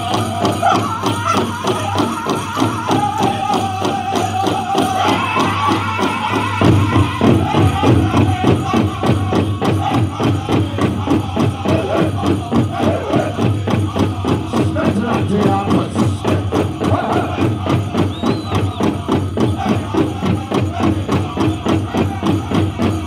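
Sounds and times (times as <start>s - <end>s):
bells jingling: 0.0s - 11.4s
high voices singing: 0.0s - 23.0s
large drum fast beat: 0.0s - 23.0s.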